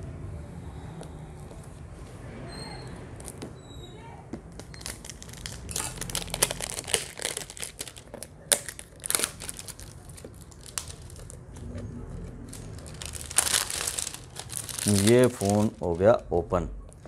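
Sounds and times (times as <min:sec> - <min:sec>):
plastic shrink wrap crinkling: 0:04.6 - 0:11.6, 0:12.4 - 0:16.0.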